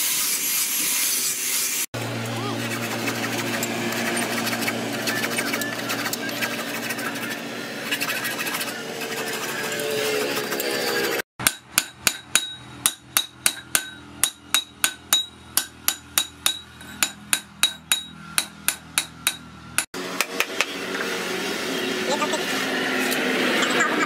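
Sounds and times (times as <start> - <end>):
file rasping on steel: 2.6 - 15.0
hammer striking steel on anvil: 11.4 - 21.0.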